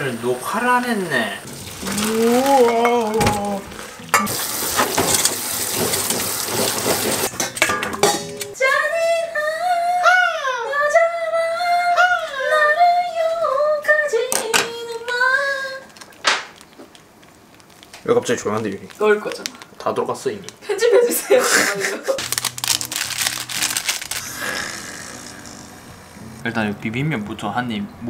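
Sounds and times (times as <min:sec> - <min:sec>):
water running into a metal strainer: 0:01.4 - 0:07.3
woman singing: 0:08.6 - 0:15.9.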